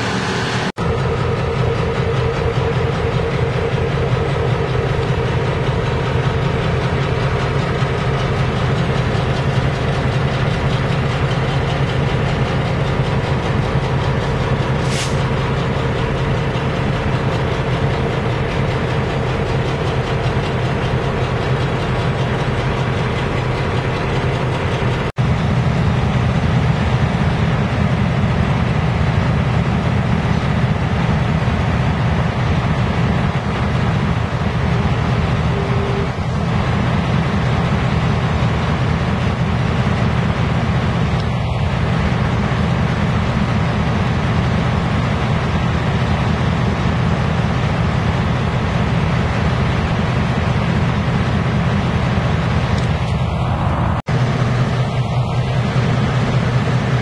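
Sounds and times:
diesel locomotive engines running: 0.0 - 57.0
short hiss: 14.8 - 15.3.

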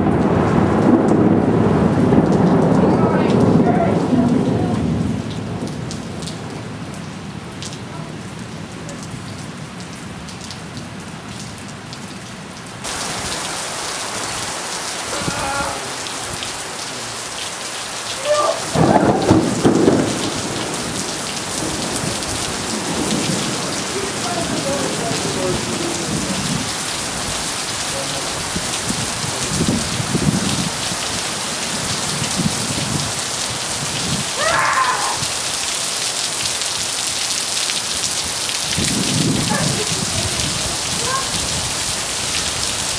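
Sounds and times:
thunder clap and rumble: 0.0 - 6.9, 18.6 - 34.4, 38.6 - 42.9
heavy rain pouring: 0.0 - 42.9.

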